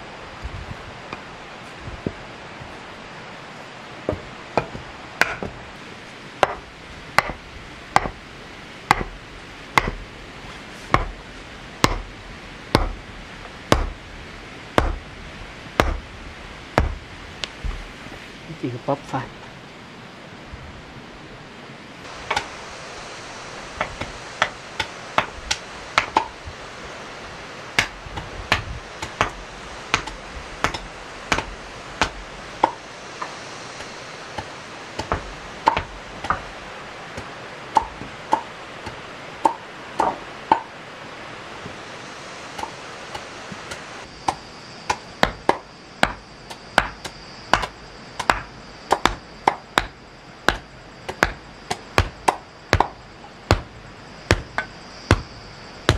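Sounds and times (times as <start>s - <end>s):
steady background hiss: 0.0s - 55.9s
hand tool striking with ringing: 43.7s - 53.7s, 54.3s - 55.9s.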